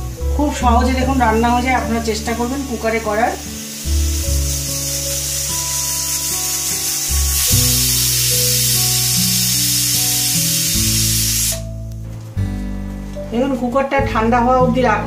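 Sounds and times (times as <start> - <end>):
background music: 0.0 - 15.0
pressure cooker whistle hissing: 2.0 - 11.7.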